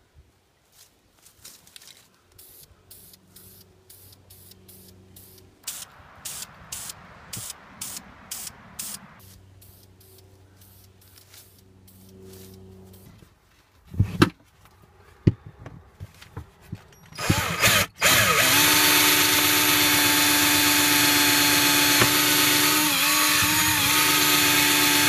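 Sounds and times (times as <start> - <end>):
aerosol spray hissing bursts: 2.4 - 12.0.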